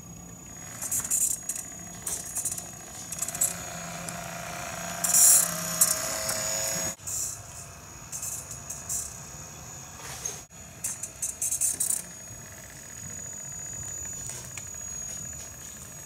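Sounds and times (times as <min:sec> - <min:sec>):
toy truck electric motor whine: 0:00.0 - 0:16.0
rattles: 0:00.7 - 0:09.2.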